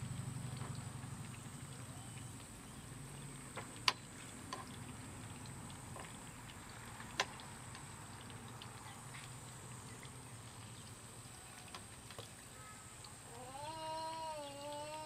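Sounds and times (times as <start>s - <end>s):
vegetables frying in oil: 0.0s - 15.0s.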